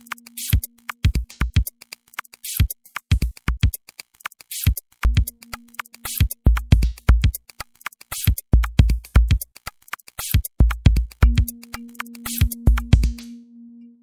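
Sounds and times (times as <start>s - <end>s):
electronic music with drum machine: 0.0s - 13.5s
low held tone: 11.2s - 14.0s.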